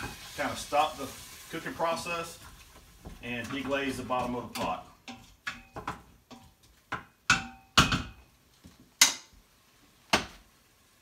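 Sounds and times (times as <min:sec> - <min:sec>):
spoon clanking on metal pot: 0:03.4 - 0:08.2.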